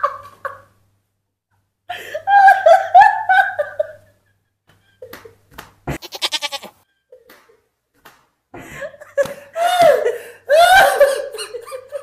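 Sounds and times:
people laughing hard: 1.9 - 5.3, 8.6 - 12.0.

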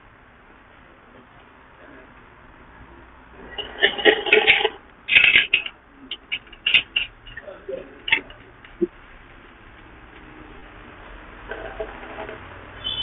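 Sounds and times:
metallic clatter: 3.4 - 8.7.

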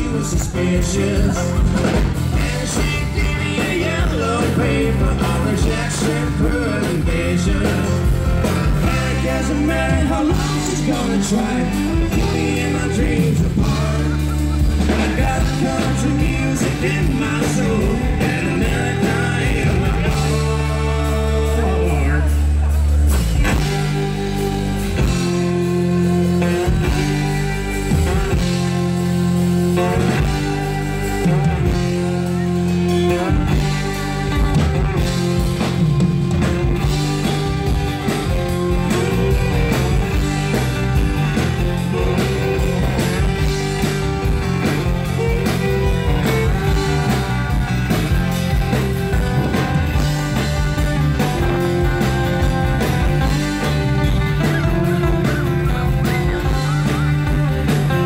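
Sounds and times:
bass: 0.0 - 58.0
drums: 0.0 - 58.0
fiddle: 23.3 - 58.0.

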